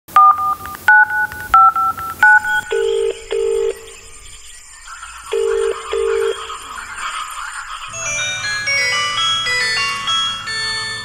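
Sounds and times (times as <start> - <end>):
phone keypad tones: 0.1 - 3.9
ringback tone double ring: 0.2 - 3.9.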